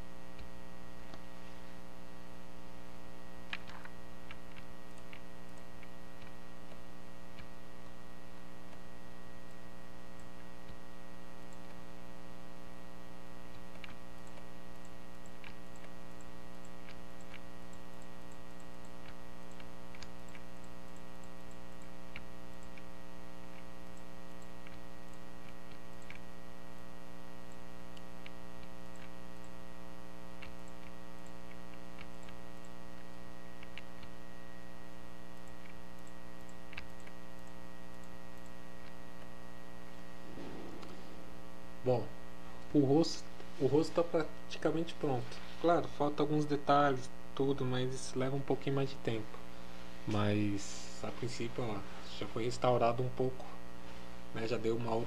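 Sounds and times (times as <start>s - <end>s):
electrical mains hum: 0.0s - 55.0s
computer mouse clicks: 3.4s - 8.0s, 13.5s - 26.3s, 27.5s - 29.6s, 30.3s - 34.2s, 35.3s - 39.3s.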